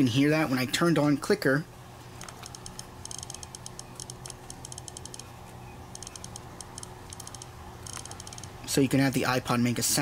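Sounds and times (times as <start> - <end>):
click wheel ticking: 2.2 - 5.3, 5.9 - 8.6.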